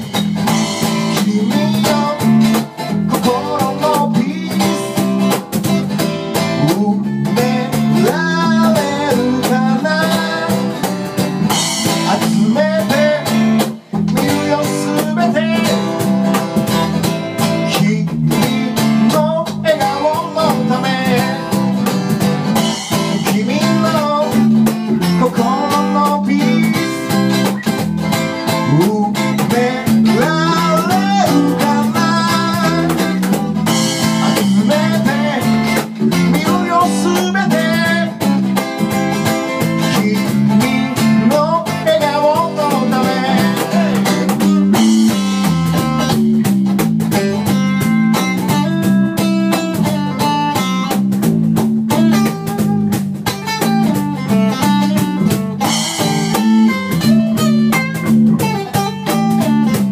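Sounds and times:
live band playing: 0.0 - 59.9
person singing: 0.8 - 5.4, 6.4 - 11.0, 11.9 - 16.0, 17.5 - 21.6, 23.0 - 27.2, 28.6 - 45.3.

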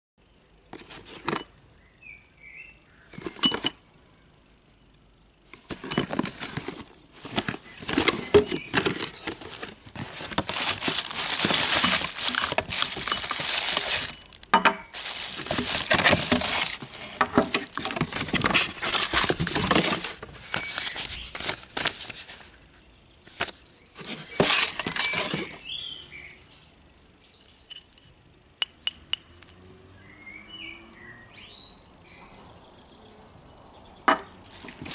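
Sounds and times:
cardboard box handled: 5.6 - 14.4, 15.0 - 22.6, 23.4 - 25.6, 34.5 - 34.9
plastic wrapping crinkling: 5.6 - 22.6, 34.4 - 34.9.

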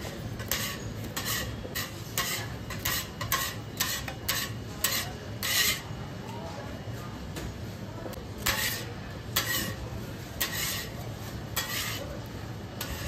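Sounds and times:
metal scraper scraping griddle: 0.4 - 5.9, 8.4 - 9.8, 10.4 - 12.1, 12.8 - 13.0.

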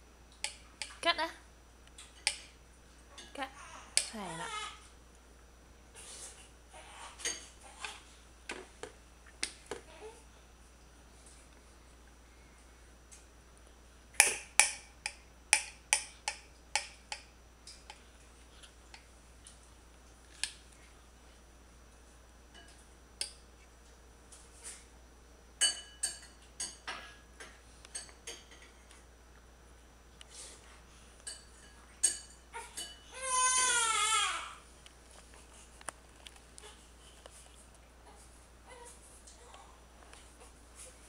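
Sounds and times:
fork tapping on plate: 14.2 - 17.3
toddler whiny cry: 32.6 - 34.6.

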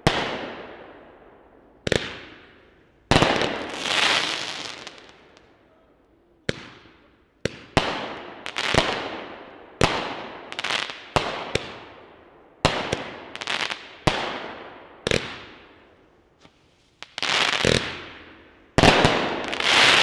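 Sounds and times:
fireworks bangs: 1.9 - 5.5, 16.4 - 20.0.

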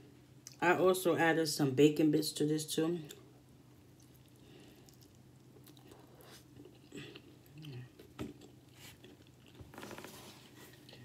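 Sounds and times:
person chewing food: 3.2 - 10.0.

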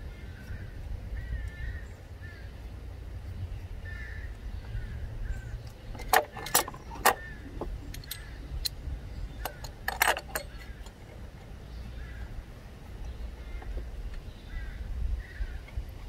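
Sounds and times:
steady low rumble: 0.0 - 16.0
metal socket tools clinking: 5.7 - 11.0.

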